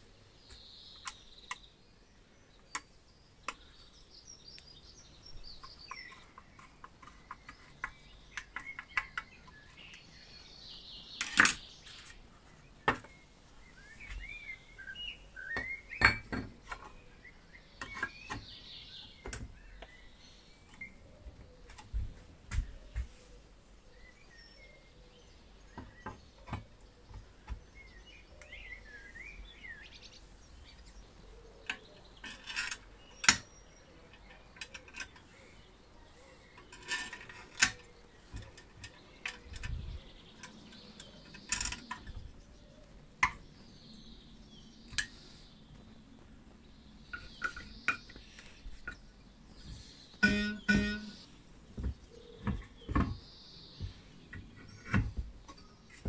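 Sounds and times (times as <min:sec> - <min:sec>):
small birds chirping: 0:00.0 - 0:56.0
metal parts clicking and knocking: 0:31.6 - 0:33.5, 0:34.1 - 0:35.4, 0:36.5 - 0:42.3, 0:50.2 - 0:51.2.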